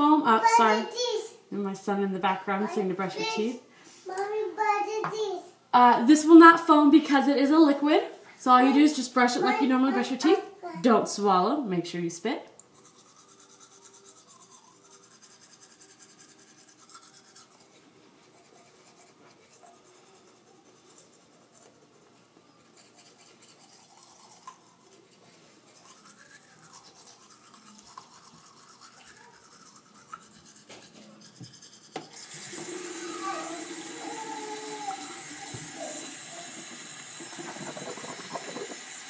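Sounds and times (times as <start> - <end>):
toothbrush scrubbing teeth: 12.6 - 39.0.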